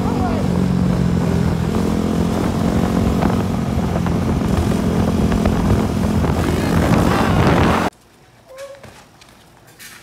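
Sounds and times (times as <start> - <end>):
dirt bike engine at high revs: 0.0 - 7.9.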